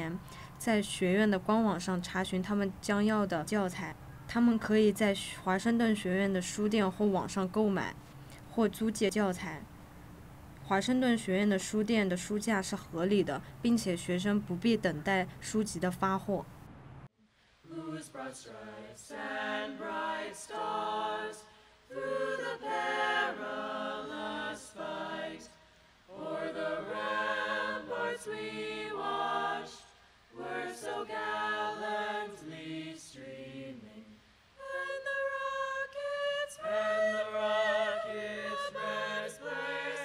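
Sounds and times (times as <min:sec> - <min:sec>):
group singing a cappella: 0:17.6 - 0:40.0.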